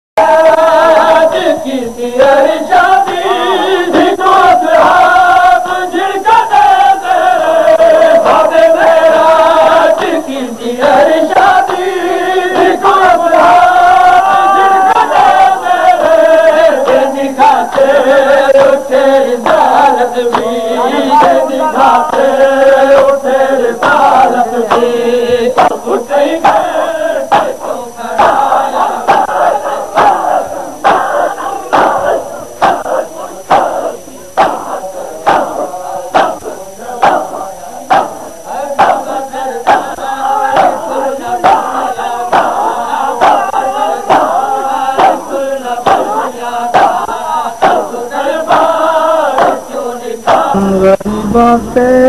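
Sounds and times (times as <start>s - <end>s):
men chanting a lament: 0.2s - 52.0s
chest beating slaps: 25.6s - 26.7s, 28.2s - 28.5s, 30.0s - 31.1s, 31.7s - 33.8s, 34.4s - 37.3s, 37.9s - 38.2s, 40.5s - 41.7s, 42.3s - 43.5s, 44.1s - 44.4s, 45.8s - 47.9s, 49.3s - 49.6s.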